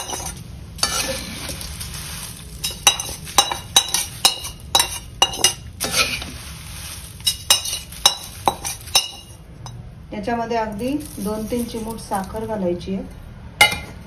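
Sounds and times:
metal spoon clinking on pans: 0.0 - 6.4, 7.2 - 9.8
spoon scraping through flattened rice: 0.0 - 9.4, 10.9 - 12.5.

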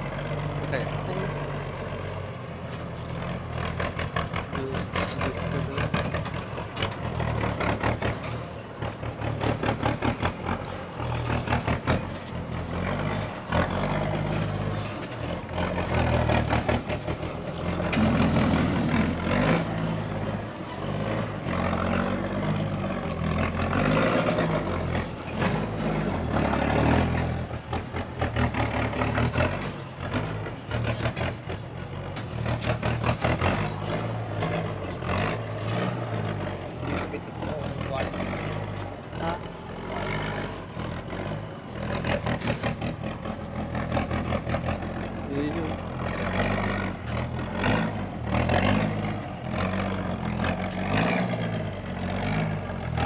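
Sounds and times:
truck engine labouring: 0.0 - 53.0
truck body knocking and clattering: 0.3 - 18.0, 19.3 - 53.0.

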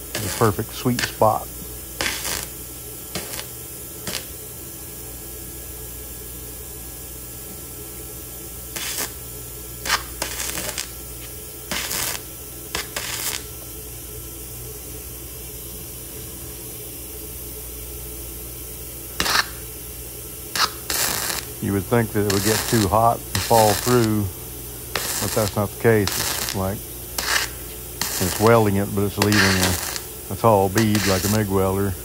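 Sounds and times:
welding arc crackle: 0.0 - 4.8, 8.6 - 13.8, 19.1 - 32.0
low steady hum: 0.0 - 32.0.

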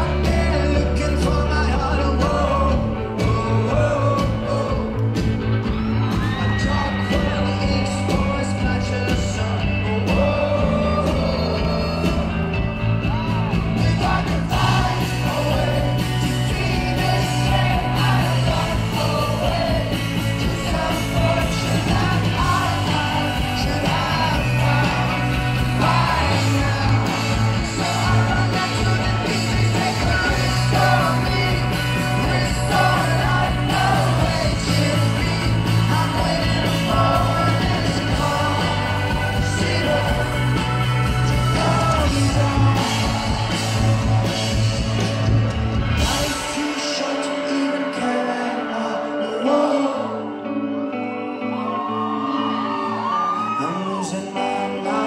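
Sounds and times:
singer singing into microphone: 0.0 - 44.6, 45.9 - 55.0
bass line: 0.0 - 47.6
drums: 0.0 - 50.1
electric guitar: 0.0 - 55.0.

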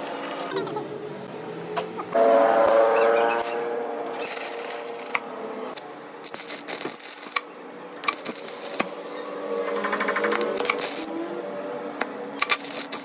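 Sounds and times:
welding arc crackling and sizzling: 3.3 - 13.0
sharp welding pops: 3.4 - 9.0, 9.7 - 11.1, 12.0 - 13.0.

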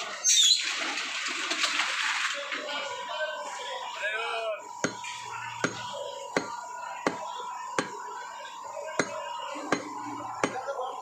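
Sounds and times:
cleaver chopping on wooden block: 6.4 - 7.2, 9.0 - 10.6.

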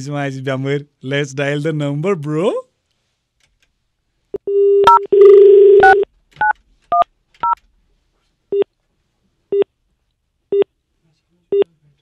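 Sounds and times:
keypad tones: 4.5 - 7.6.

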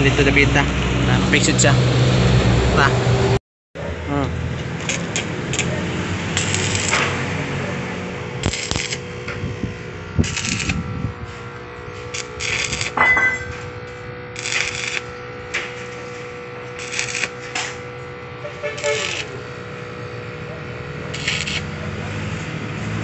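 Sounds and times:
welding arc crackling: 4.4 - 11.2, 11.8 - 23.0.

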